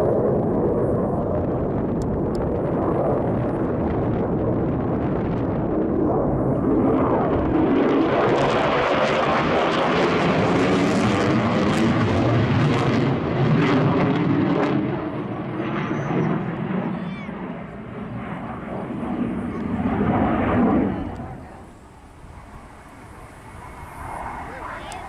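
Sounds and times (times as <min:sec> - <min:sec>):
jet engine roar: 0:00.0 - 0:25.0.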